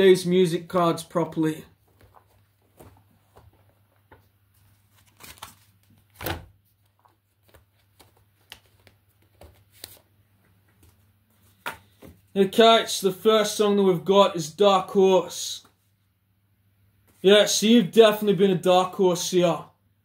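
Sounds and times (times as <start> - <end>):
paper cards rustling and tapping: 1.8 - 12.3.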